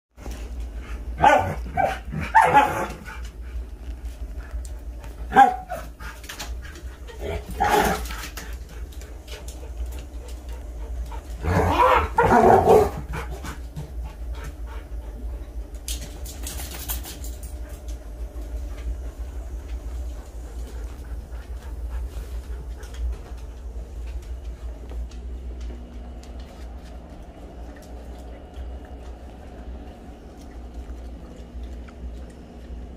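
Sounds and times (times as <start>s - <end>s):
dog barking: 1.2s - 2.9s, 5.3s - 5.8s.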